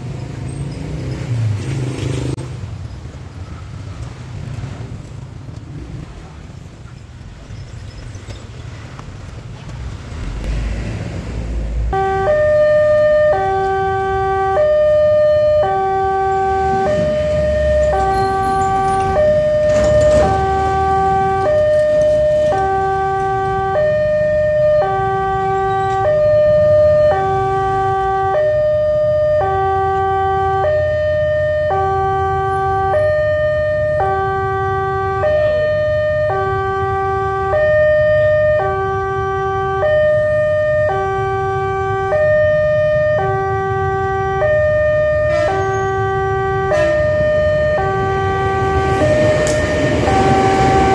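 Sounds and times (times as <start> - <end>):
low road traffic rumble: 0.0 - 50.9
level crossing alarm two-tone: 11.9 - 50.9.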